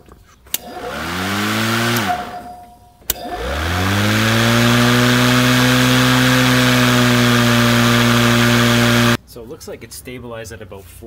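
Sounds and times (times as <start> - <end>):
electric mower motor whining: 0.5 - 9.2
switch click: 1.9 - 3.4.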